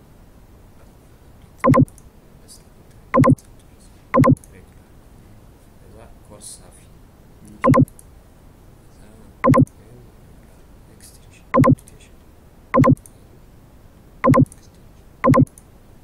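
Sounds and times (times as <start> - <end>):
low steady hiss: 0.0 - 16.0
computer mouse clicks: 3.2 - 3.4, 4.2 - 4.6, 9.4 - 9.8, 11.6 - 11.9, 12.8 - 13.1, 14.2 - 14.6, 15.2 - 15.7.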